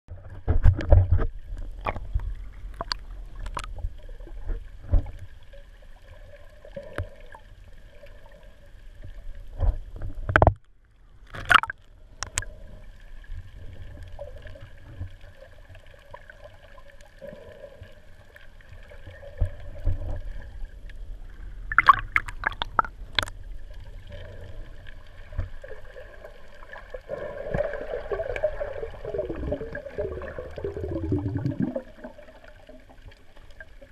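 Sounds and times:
underwater rumble of moving water: 0.1 - 33.9
faint steady hum: 1.0 - 33.9
sharp clicks and knocks: 10.0 - 10.6.

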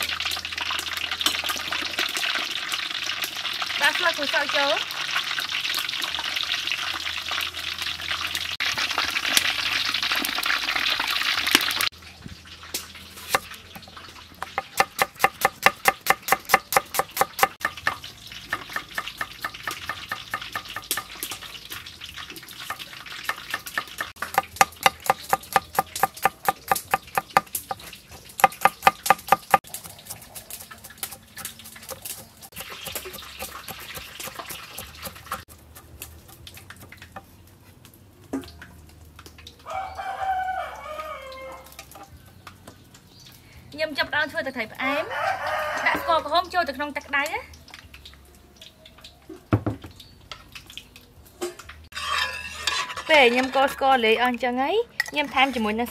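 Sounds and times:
oil sizzling in a wok: 0.0 - 43.4, 44.0 - 55.9
cleaver chopping on wooden board: 14.7 - 17.8, 23.6 - 27.7, 28.4 - 29.6
spatula stirring: 22.4 - 37.8, 51.9 - 54.1.

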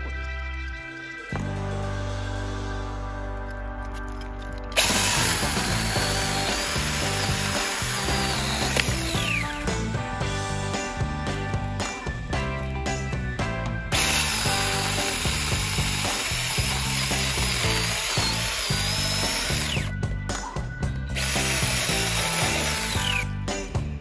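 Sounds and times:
chainsaw cutting tree trunk: 4.8 - 9.6, 14.0 - 19.9, 21.2 - 23.3.

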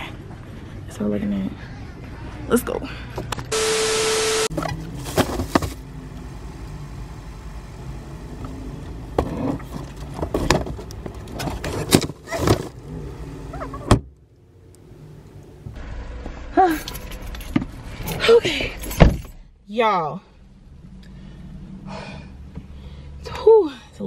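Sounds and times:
low steady hum: 0.0 - 24.0.

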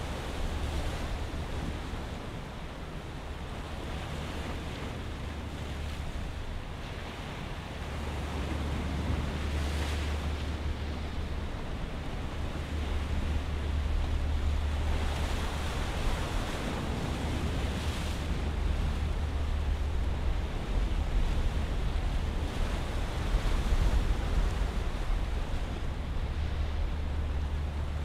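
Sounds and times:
sea waves on rocky shore: 0.0 - 28.0
wind rumble on microphone: 0.0 - 28.0.

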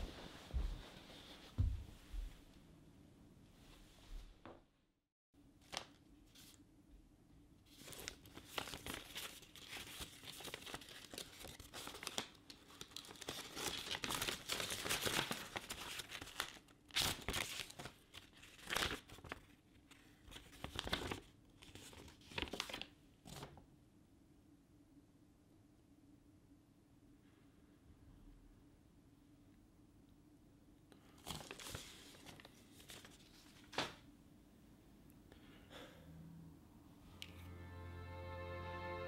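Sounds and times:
envelope tearing: 7.7 - 19.5
paper rustling and crinkling: 7.7 - 23.6, 31.0 - 34.0.

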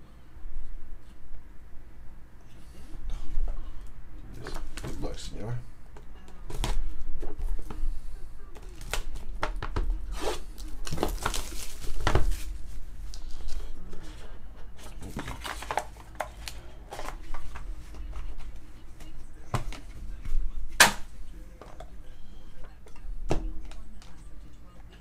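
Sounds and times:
shrink-wrap crinkling and tearing: 8.6 - 9.2, 10.1 - 13.3.

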